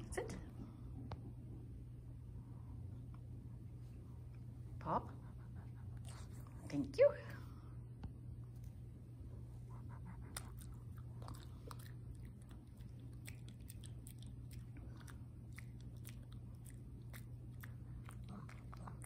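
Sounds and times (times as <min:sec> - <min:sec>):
dog chewing treat: 0:10.2 - 0:19.0.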